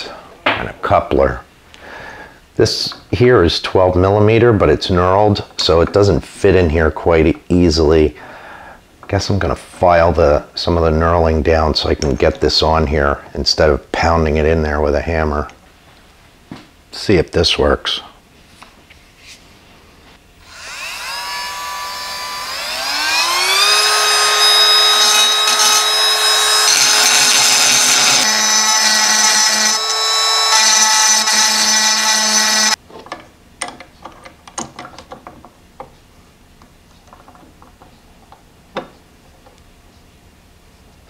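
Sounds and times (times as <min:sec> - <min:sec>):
rotary tool grinding steel: 0:20.4 - 0:32.8.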